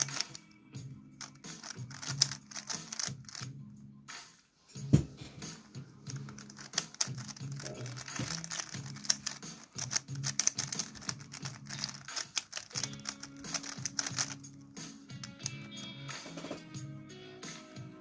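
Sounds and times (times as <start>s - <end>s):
speed cube layers clicking: 0.0s - 0.4s, 1.2s - 3.4s, 6.1s - 14.5s
background music: 0.0s - 18.0s.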